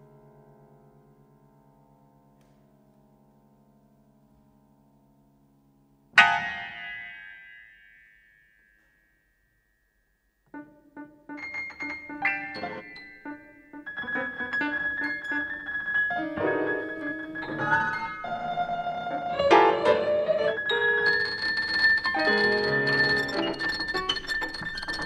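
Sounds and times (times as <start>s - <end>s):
bright piano attack: 6.2s - 9.2s, 10.5s - 25.0s.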